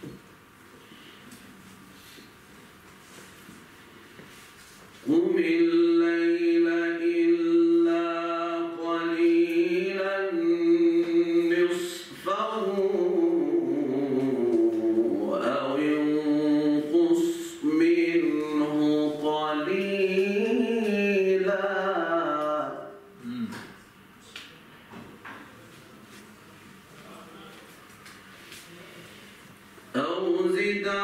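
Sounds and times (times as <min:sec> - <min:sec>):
man chanting melodically: 0:05.0 - 0:23.6, 0:29.9 - 0:31.0.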